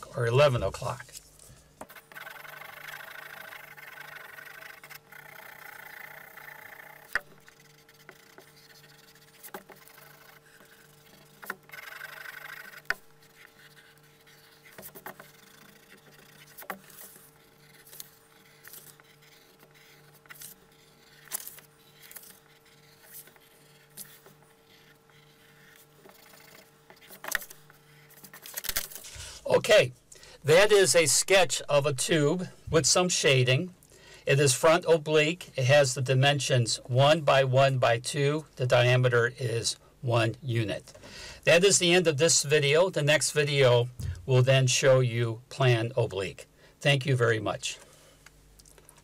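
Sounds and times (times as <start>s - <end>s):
pencil shading on paper: 1.8s - 28.4s.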